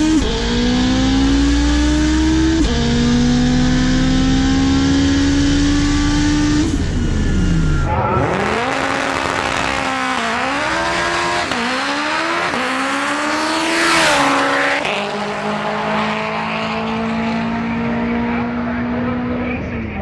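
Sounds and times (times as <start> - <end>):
car engine revving at full throttle: 0.0 - 20.0
car passing with loud rush: 4.6 - 19.5.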